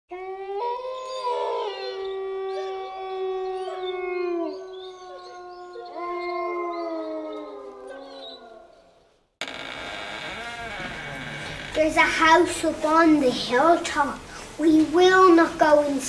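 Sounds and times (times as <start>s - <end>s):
wolves howling: 0.2s - 8.9s.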